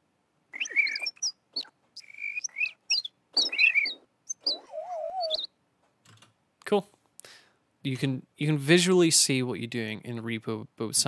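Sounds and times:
bird chirps and warbles: 0.6 - 5.6.

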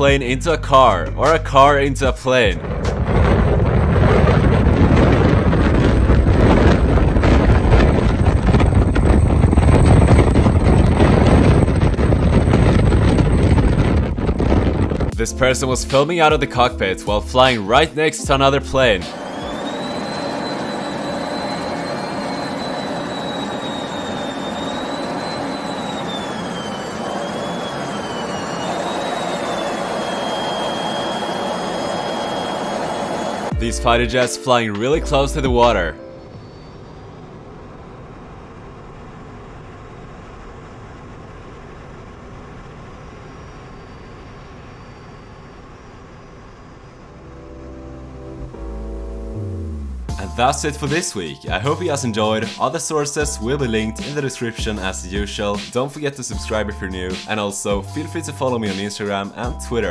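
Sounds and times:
high wavering whine: 0.0 - 59.9
jet engine noise: 0.0 - 59.9
rushing air: 2.4 - 15.2, 19.0 - 33.6
wind buffeting on microphone: 2.4 - 15.3
road and tyre rumble: 2.5 - 15.2.

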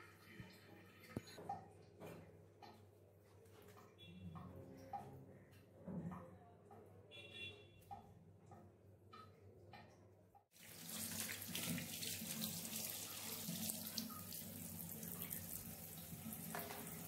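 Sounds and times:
tap running into washbasin: 10.6 - 17.0.

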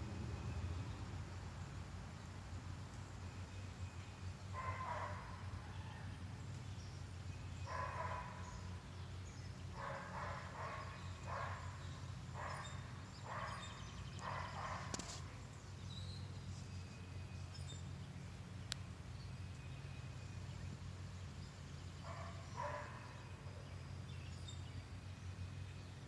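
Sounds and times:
steady low hum: 0.0 - 26.0
dog barking: 4.6 - 5.4, 7.7 - 8.4, 9.8 - 11.7, 12.4 - 15.0, 22.0 - 23.2.

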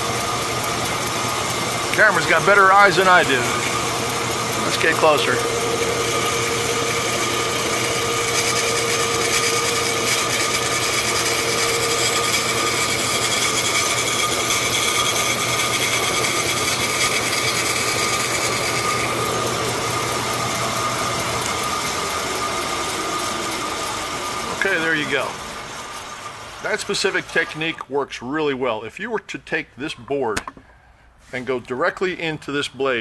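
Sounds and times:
bandsaw whining: 0.0 - 27.8
saw blade shaving particleboard: 0.7 - 25.4.

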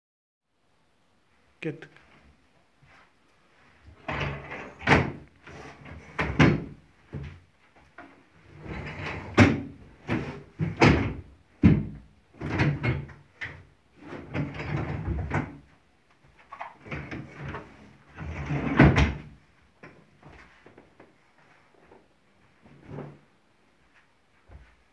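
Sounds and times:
sofa sections sliding and rubbing: 2.8 - 11.2, 12.4 - 15.7, 16.3 - 19.3, 20.1 - 24.9.

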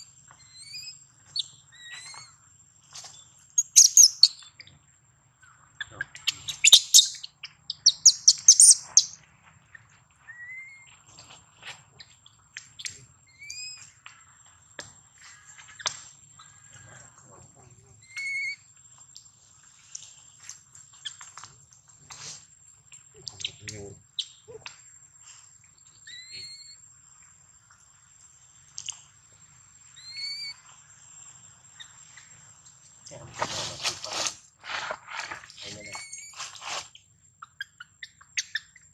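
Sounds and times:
infant monkey squeaking calls: 0.0 - 2.3, 3.6 - 4.5, 5.8 - 9.2, 13.3 - 13.9, 18.0 - 18.6, 26.1 - 26.8, 30.0 - 30.5.

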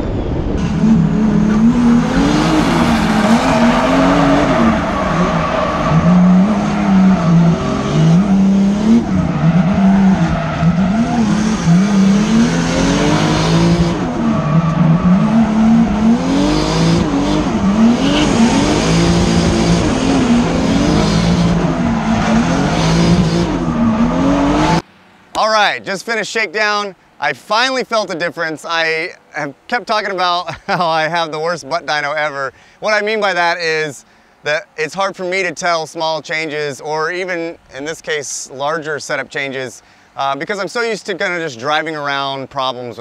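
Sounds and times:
car engine revving: 0.0 - 24.8.

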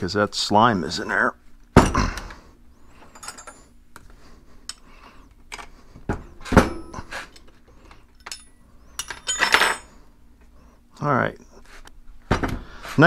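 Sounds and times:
metal tools clinking: 2.9 - 3.8, 6.7 - 10.0.

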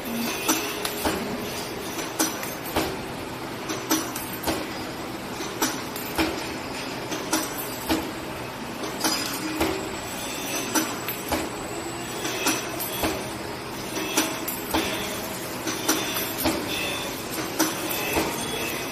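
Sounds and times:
wire bending machine running: 0.0 - 18.9
sharp metallic clacks: 13.9 - 18.5.

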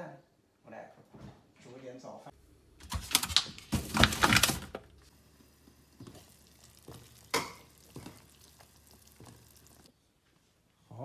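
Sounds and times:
water boiling in pot: 5.1 - 9.9.

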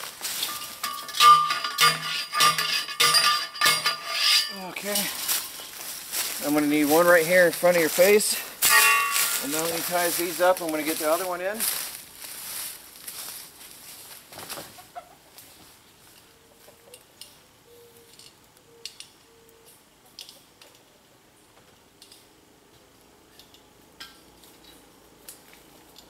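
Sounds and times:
chickens clucking: 14.6 - 15.6.

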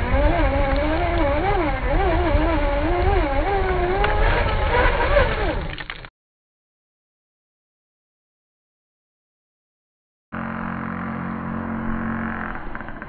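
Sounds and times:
electric motor whining: 0.0 - 6.0, 10.4 - 13.0.

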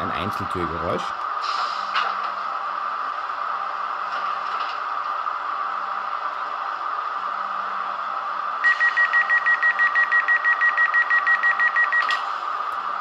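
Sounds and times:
rapid door-closing warning beeps: 8.6 - 12.3.

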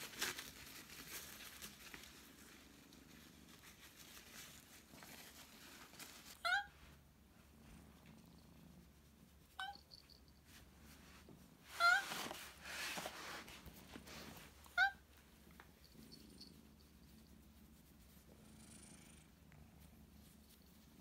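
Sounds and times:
rustle of handling: 0.0 - 21.0
cat meowing: 6.4 - 6.8, 9.6 - 9.8, 11.8 - 12.1, 14.7 - 15.0
cat purring: 15.6 - 21.0.

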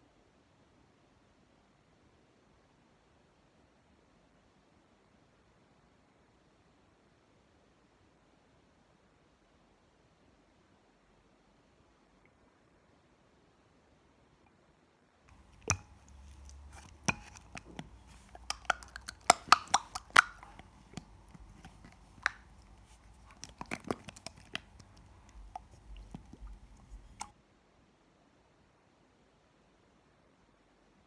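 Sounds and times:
soft material crackling and popping: 15.3 - 27.4.

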